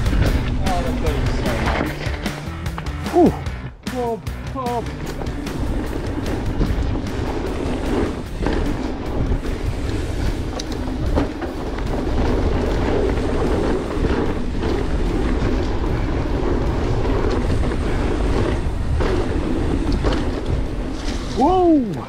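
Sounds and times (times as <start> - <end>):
wind rush: 0.0 - 2.3, 4.7 - 22.0
tyres rolling on dirt: 0.0 - 3.6, 4.3 - 22.0
bike rattling: 0.0 - 22.0.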